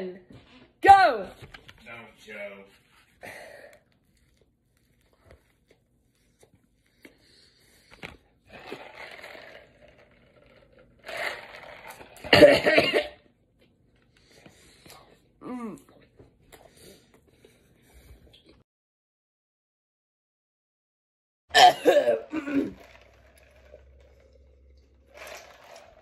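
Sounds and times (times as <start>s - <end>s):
person coughing: 12.2s - 13.2s, 21.5s - 22.8s.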